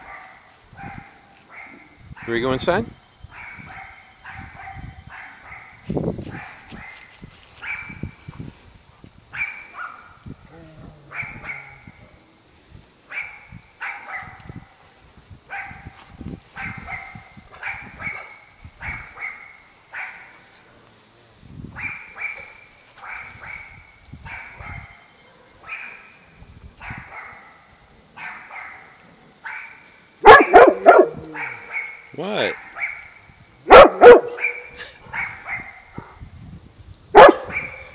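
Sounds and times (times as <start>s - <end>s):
dog barking: 0.0s - 2.4s, 3.3s - 8.0s, 9.4s - 10.2s, 11.1s - 12.0s, 13.1s - 14.5s, 15.5s - 16.0s, 16.6s - 20.4s, 21.8s - 26.1s, 26.8s - 36.2s, 37.2s - 37.9s.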